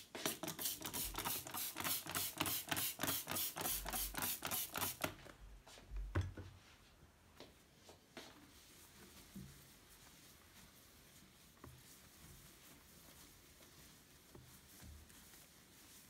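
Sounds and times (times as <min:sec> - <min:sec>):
spray bottle hissing: 0:00.2 - 0:05.1.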